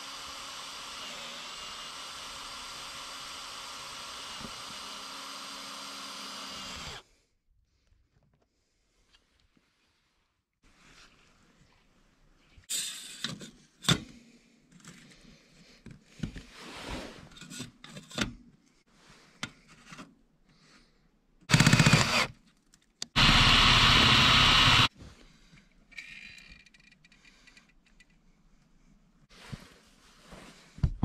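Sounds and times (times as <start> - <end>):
cordless drill driving screws: 0.0 - 7.0, 21.5 - 22.3, 23.2 - 24.9.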